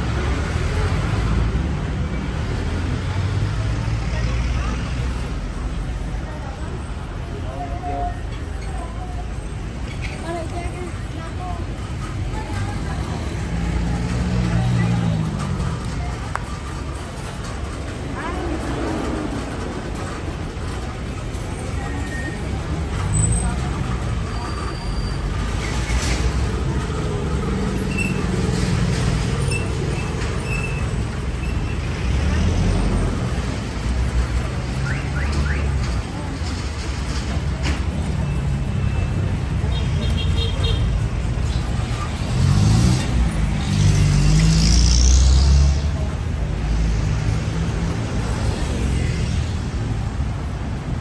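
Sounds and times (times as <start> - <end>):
vehicle engines passing: 0.0 - 51.0
vehicle passing: 41.3 - 50.5.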